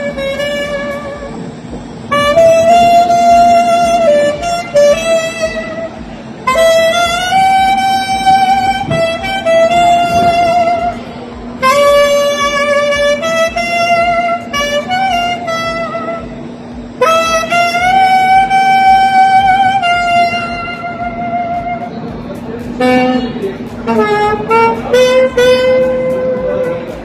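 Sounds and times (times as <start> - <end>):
saxophone slow melody: 0.0 - 27.0.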